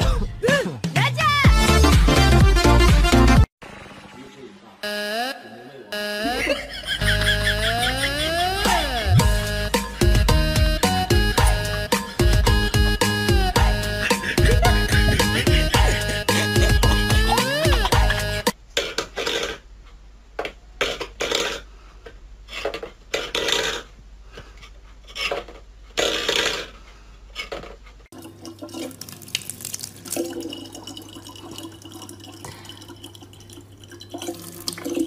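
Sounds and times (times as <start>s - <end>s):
water running from tap: 28.2s - 35.0s.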